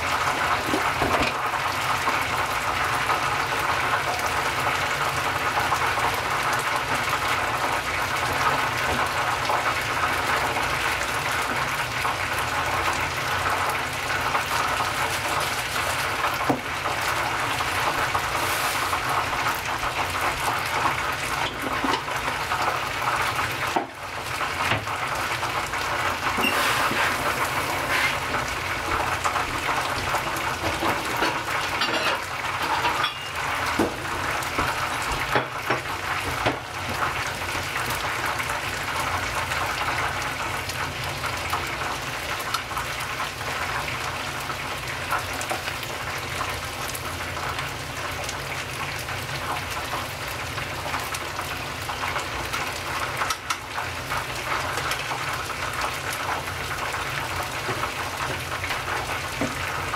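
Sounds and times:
chicken deep-frying in oil: 0:00.0 - 0:59.9
oil crackling and popping: 0:00.0 - 0:59.9.

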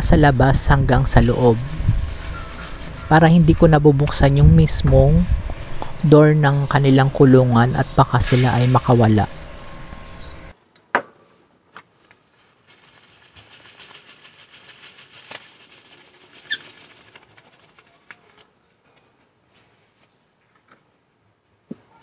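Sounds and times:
birdseed trickling: 0:12.2 - 0:18.3.

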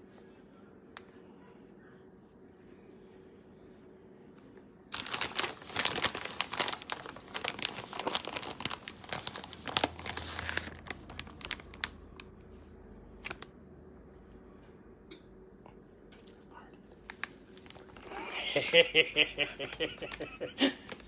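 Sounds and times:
packaging crinkling and tearing: 0:04.9 - 0:12.4, 0:13.2 - 0:13.5, 0:17.0 - 0:21.0.

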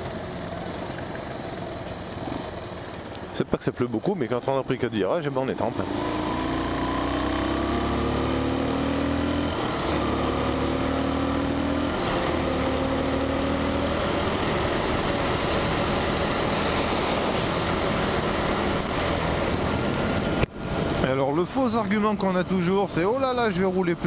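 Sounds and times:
wet road noise: 0:00.0 - 0:24.0
motorcycle engine accelerating: 0:04.3 - 0:21.0.

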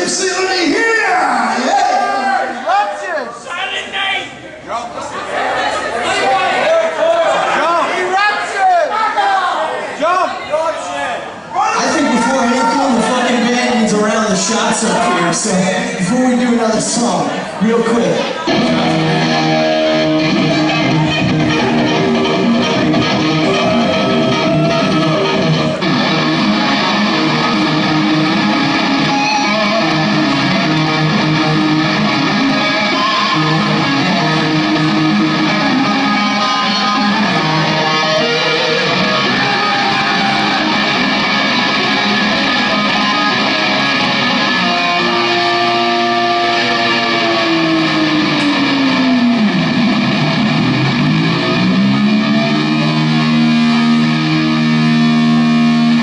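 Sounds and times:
loud electric guitar notes: 0:18.2 - 0:56.0.

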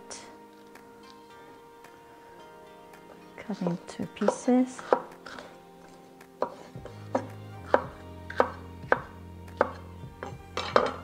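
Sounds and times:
knife tapping on wooden board: 0:04.2 - 0:05.4, 0:06.4 - 0:11.0.

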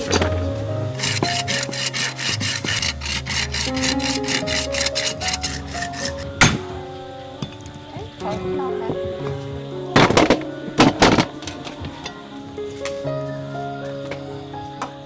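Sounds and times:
background music: 0:00.0 - 0:15.0
hand saw cutting bone: 0:00.9 - 0:06.2
cleaver striking bone: 0:06.4 - 0:06.6.

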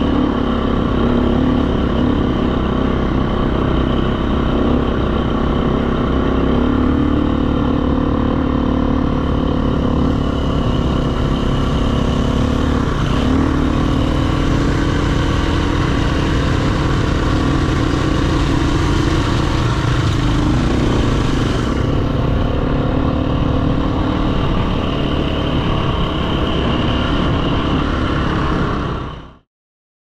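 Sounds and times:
dirt bike engine running: 0:00.0 - 0:29.3.

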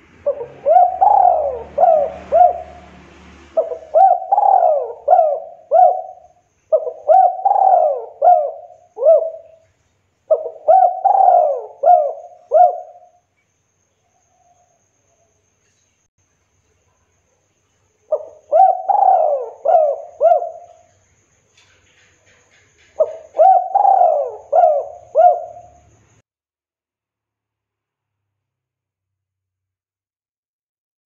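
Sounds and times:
dove cooing: 0:00.2 - 0:09.6, 0:10.3 - 0:13.2, 0:18.1 - 0:20.9, 0:23.0 - 0:25.9.

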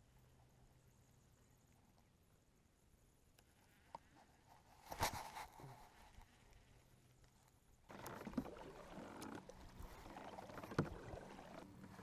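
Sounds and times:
paddle splashing water: 0:07.9 - 0:12.0.

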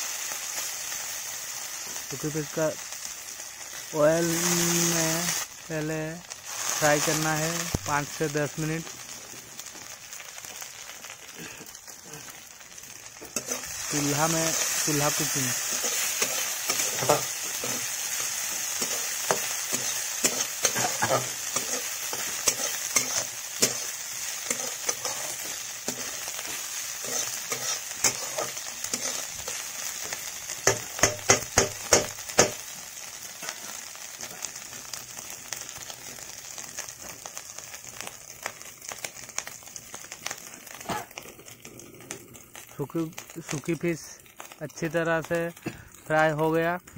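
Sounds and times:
fish sizzling in hot oil: 0:00.0 - 0:46.9
metal spatula scraping pan: 0:13.2 - 0:13.8, 0:15.6 - 0:29.6
spatula knocking on pan: 0:30.7 - 0:32.6.

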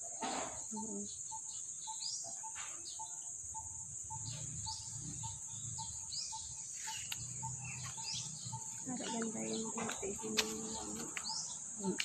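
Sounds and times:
bird chirps: 0:00.0 - 0:12.0
high-pitched insect drone: 0:00.7 - 0:12.0.

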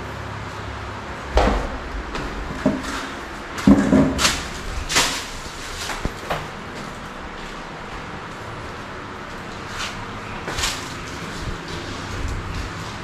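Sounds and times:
steady low background noise: 0:00.0 - 0:13.0
irregular knocks: 0:01.4 - 0:03.0.

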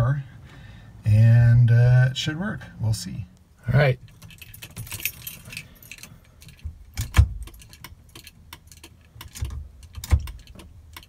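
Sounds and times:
keys jangling on key ring: 0:04.0 - 0:10.6.

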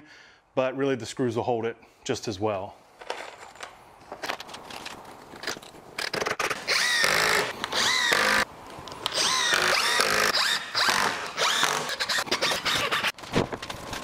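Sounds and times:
impact driver driving screws: 0:09.0 - 0:13.2.

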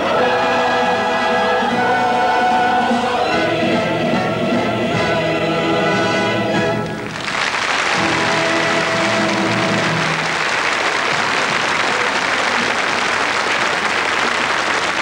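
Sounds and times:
orchestra and choir chord: 0:00.0 - 0:07.0, 0:08.0 - 0:10.3
large audience applauding: 0:06.8 - 0:15.0.

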